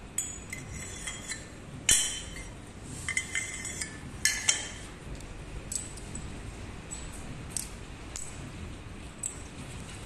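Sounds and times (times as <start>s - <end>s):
metal tubes clinking: 0.1s - 4.9s.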